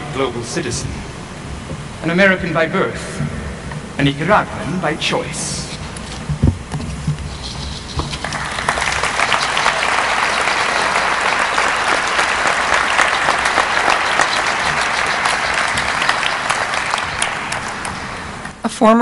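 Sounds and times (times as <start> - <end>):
audience applauding: 8.2 - 18.5.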